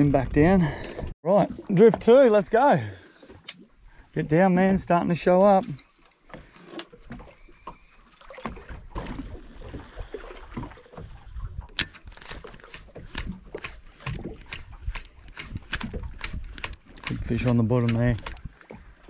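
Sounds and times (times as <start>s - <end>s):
water sloshing against boat hull: 0.0s - 19.0s
sharp clicks and knocks: 11.6s - 18.5s.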